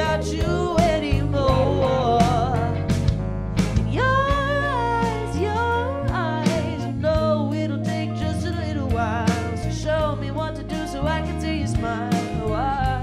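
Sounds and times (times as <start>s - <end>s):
lead vocalist singing: 0.0s - 3.0s, 3.9s - 13.0s
live band playing: 0.0s - 7.3s.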